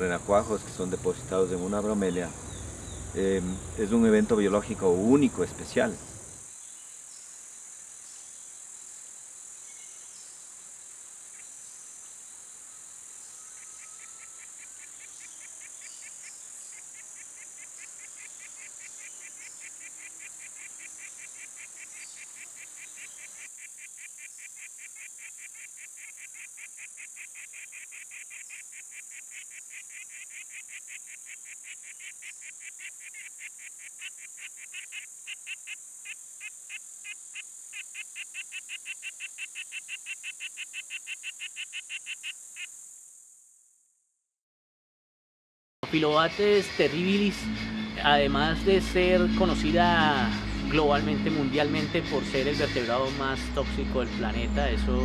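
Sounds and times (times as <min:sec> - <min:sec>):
high-pitched insect drone: 0:12.4 - 0:43.7, 0:46.0 - 0:55.0
fast pulsed chirping call: 0:13.3 - 0:43.0, 0:45.9 - 0:54.8.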